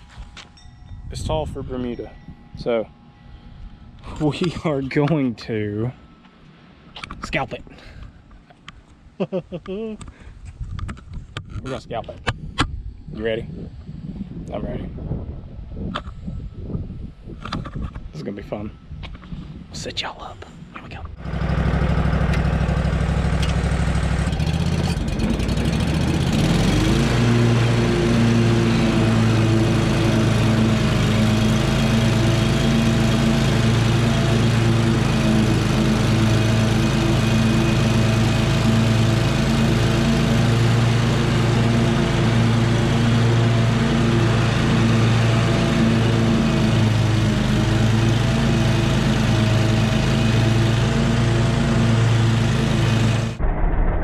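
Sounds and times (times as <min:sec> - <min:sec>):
mower engine revving: 0:21.2 - 0:53.4.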